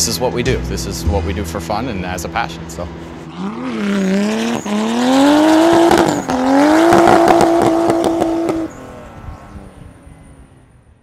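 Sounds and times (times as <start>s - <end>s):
car engine at high revs: 2.5s - 11.0s.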